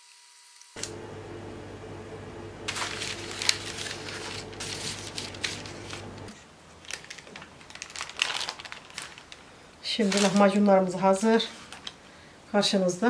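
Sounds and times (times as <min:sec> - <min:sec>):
steady low hum: 0:00.8 - 0:06.8
crinkling rustling handling: 0:02.6 - 0:12.2.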